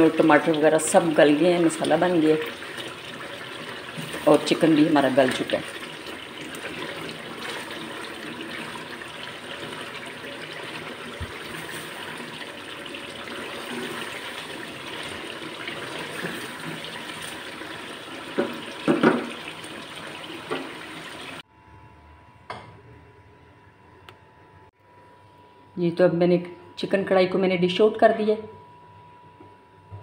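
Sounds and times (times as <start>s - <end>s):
curry sizzling and bubbling: 0.0s - 21.4s
spatula knocking and scraping pan: 18.4s - 19.4s.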